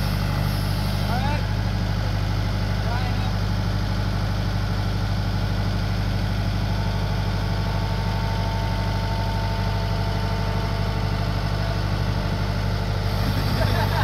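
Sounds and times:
tractor diesel engine running: 0:00.0 - 0:14.0
thin steady whine: 0:13.0 - 0:14.0.

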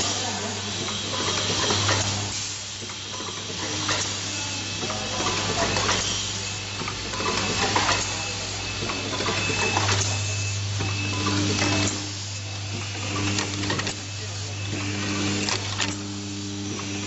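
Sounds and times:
bowl feeder humming: 0:00.0 - 0:17.0
pneumatic actuators clacking and hissing: 0:00.0 - 0:17.0.

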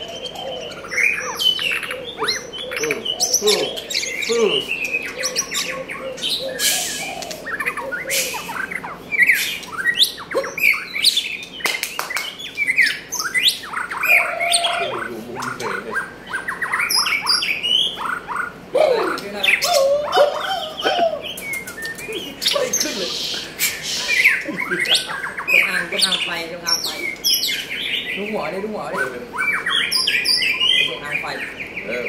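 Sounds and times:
bird singing whistled notes: 0:00.0 - 0:32.0
sharp bird clicks: 0:06.6 - 0:14.0, 0:20.8 - 0:22.6.

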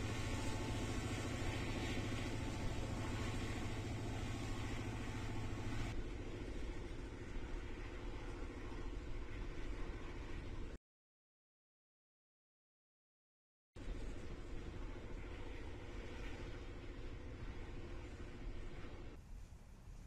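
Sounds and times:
freight cars rumbling by: 0:00.0 - 0:07.1
diesel locomotives droning: 0:00.0 - 0:10.8, 0:13.8 - 0:20.0.

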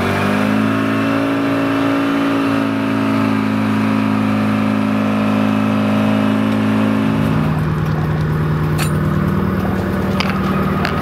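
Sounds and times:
diesel engine running: 0:00.0 - 0:11.0
sharp metallic clinks: 0:08.7 - 0:09.4.

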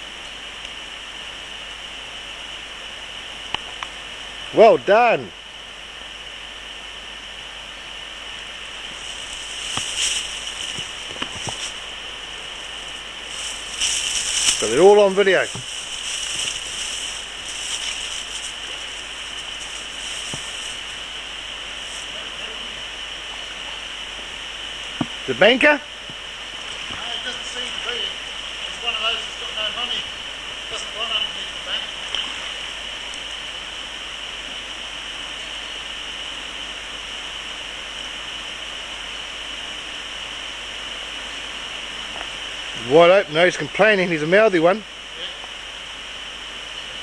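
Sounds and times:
high-pitched hiss: 0:00.0 - 0:47.0
stream running over rocks: 0:00.0 - 0:47.0
stream flowing over gravel: 0:08.3 - 0:23.6, 0:26.4 - 0:34.5.

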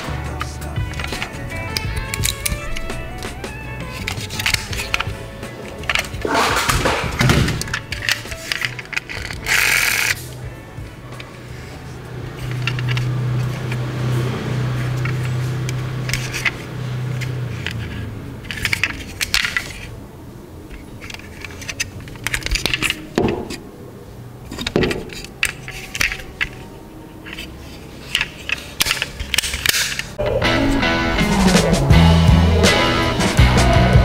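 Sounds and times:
metal toy cars clinking: 0:00.0 - 0:20.0, 0:20.6 - 0:30.2.

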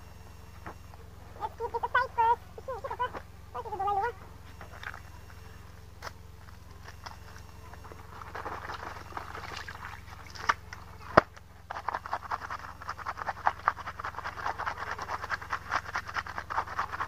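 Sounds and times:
clothes scrubbed on stone: 0:11.7 - 0:17.0.

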